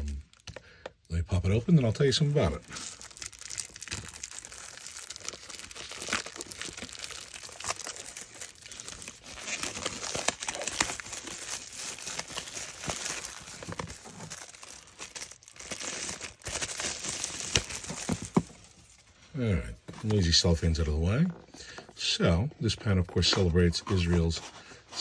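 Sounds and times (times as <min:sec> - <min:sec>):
shrink-wrap crinkling and snapping: 0:00.0 - 0:19.1.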